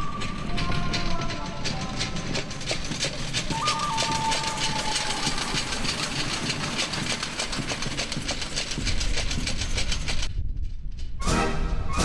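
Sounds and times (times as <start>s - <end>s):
wheels clattering on rails: 0.0s - 11.2s
low rumble: 4.6s - 12.0s.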